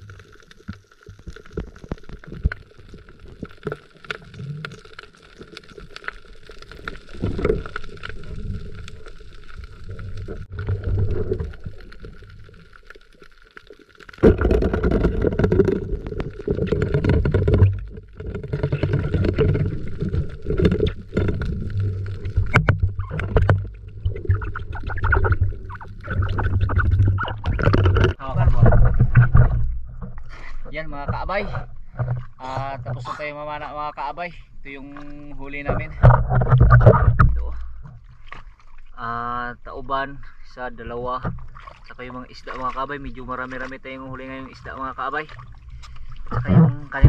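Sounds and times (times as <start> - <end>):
muffled underwater water noise: 0.0 - 47.0
rumbling churn of moving water: 14.1 - 33.6.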